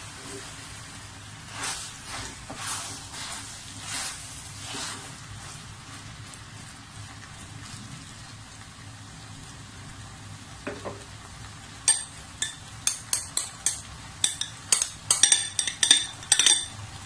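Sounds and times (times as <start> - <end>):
spatula scraping and knocking pot: 1.5 - 5.1, 11.9 - 16.8.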